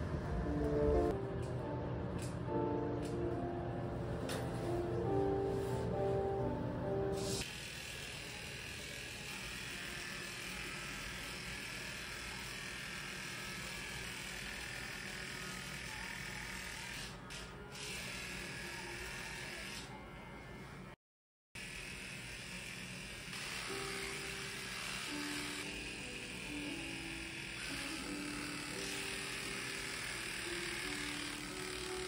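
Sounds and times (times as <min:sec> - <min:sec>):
electric pet trimmer buzzing: 0:07.3 - 0:20.4, 0:21.6 - 0:32.0.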